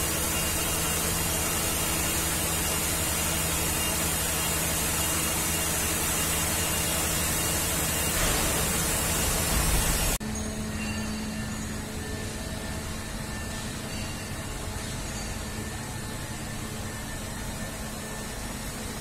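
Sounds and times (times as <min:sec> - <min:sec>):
metal milling cutting hiss: 0:00.0 - 0:10.2
spindle hum: 0:00.0 - 0:19.0.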